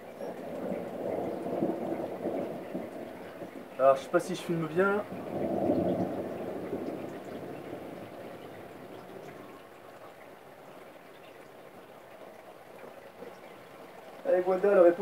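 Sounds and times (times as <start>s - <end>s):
thunder rumble: 0.0s - 11.0s
steady rain: 0.0s - 15.0s.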